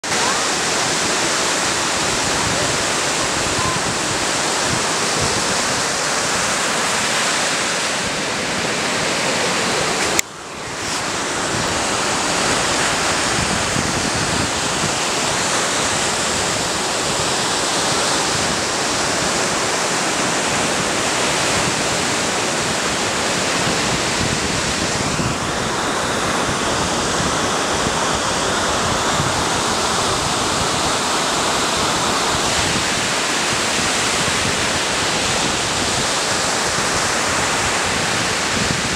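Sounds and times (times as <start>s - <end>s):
ocean surf on sandy beach: 0.0s - 38.9s.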